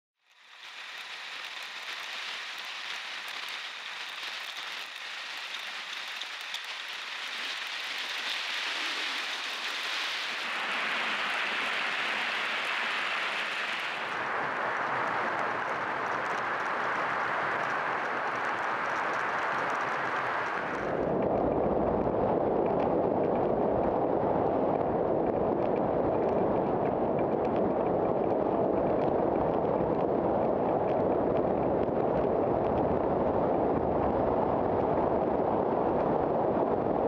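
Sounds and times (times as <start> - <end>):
bike tyre noise on asphalt: 0.2 - 37.0
wind rushing on microphone: 2.9 - 37.0.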